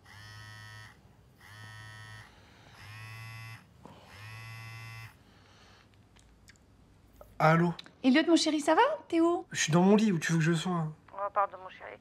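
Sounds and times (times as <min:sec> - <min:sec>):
phone buzzing: 0:00.0 - 0:05.2.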